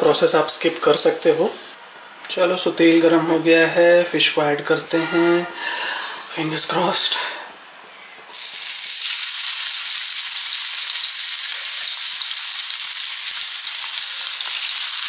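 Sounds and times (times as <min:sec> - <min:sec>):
fish sizzling in frying pan: 0:08.3 - 0:15.0
hot oil hissing: 0:08.3 - 0:15.0.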